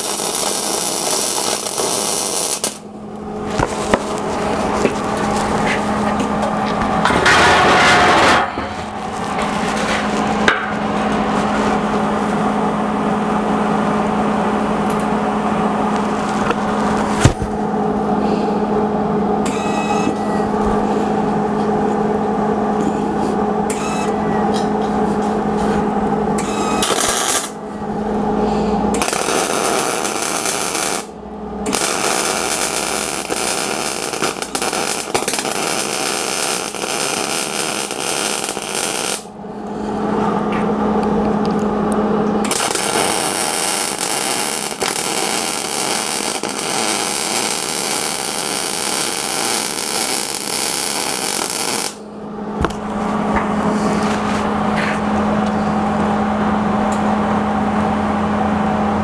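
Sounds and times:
welding arc crackling: 0.0 - 10.6, 26.4 - 27.6, 29.0 - 39.4, 42.4 - 52.0
steady low hum: 0.0 - 59.0.

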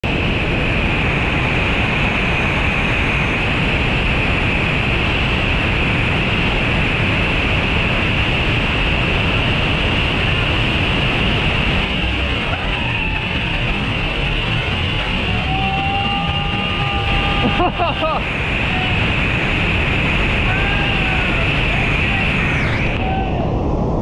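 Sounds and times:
waterfall rushing: 9.9 - 23.0.

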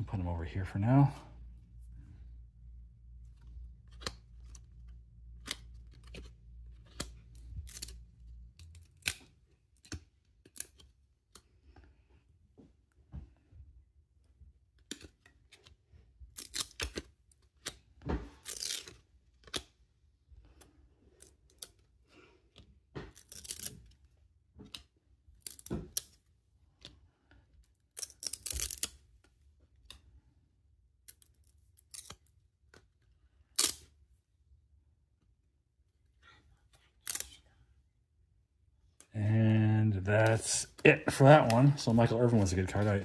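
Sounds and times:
trading cards flipped by hand: 3.1 - 11.8, 14.7 - 19.8, 20.4 - 27.0, 27.6 - 30.1, 40.2 - 43.0.

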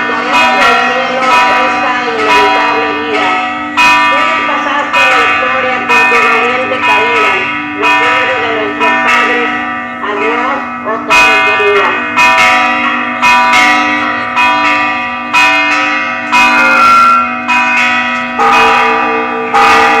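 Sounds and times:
person speaking: 0.0 - 12.2
church bells ringing: 0.0 - 20.0.

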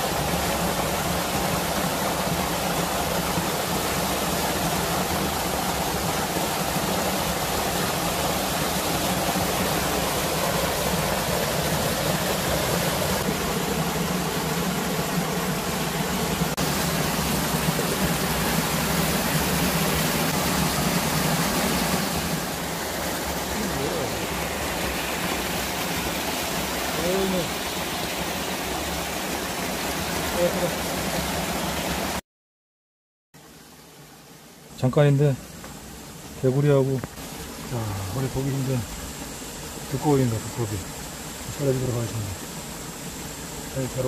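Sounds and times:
water rushing through channel: 0.0 - 32.2.

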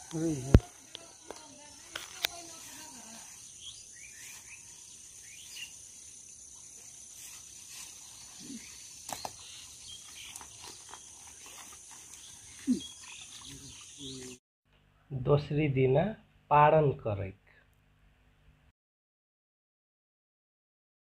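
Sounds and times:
insects chirring: 0.0 - 14.4
footsteps rustling through grass: 0.6 - 5.8, 6.6 - 13.4.

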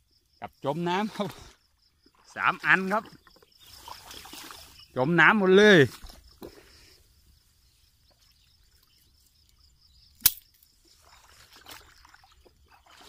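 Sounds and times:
sharp click: 10.2 - 10.5.

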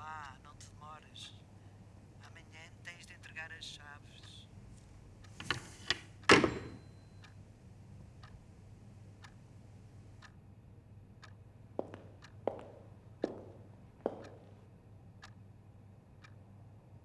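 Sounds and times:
clock ticking: 0.0 - 1.4, 2.0 - 16.6
telephone handset clattering into cradle: 5.4 - 6.9.

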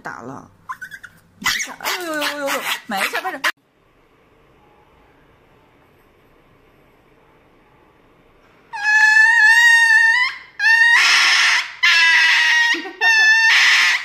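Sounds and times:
small dog screaming: 0.7 - 3.3, 8.7 - 14.0.

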